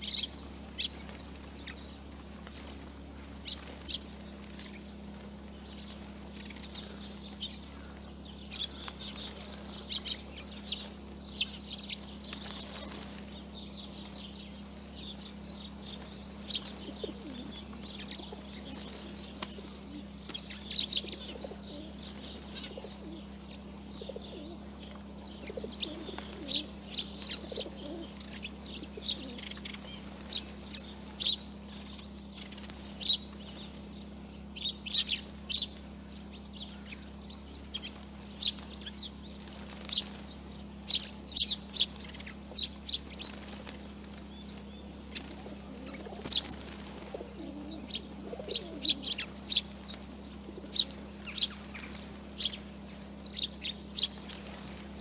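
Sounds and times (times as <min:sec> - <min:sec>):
low background hum: 0:00.0 - 0:55.0
pigeon wingbeats: 0:00.0 - 0:55.0
sparrows chirping: 0:00.0 - 0:55.0
pigeon cooing: 0:15.7 - 0:31.4, 0:44.9 - 0:52.0.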